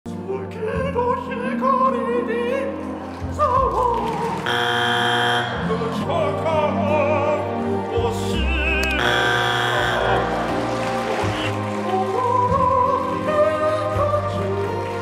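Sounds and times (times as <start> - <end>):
backing music: 0.1 - 15.0
operatic singing: 0.1 - 15.0
buzzer tone: 4.5 - 5.8, 9.0 - 10.3.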